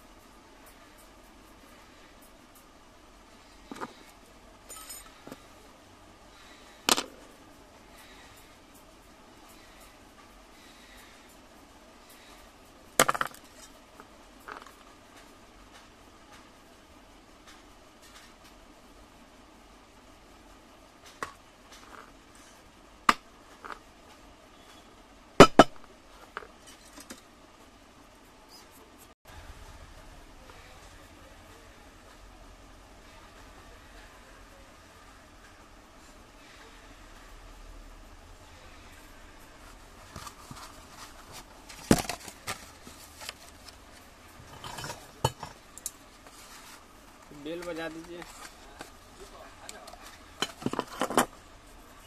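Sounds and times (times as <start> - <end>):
light metal scraping: 44.4 - 48.9.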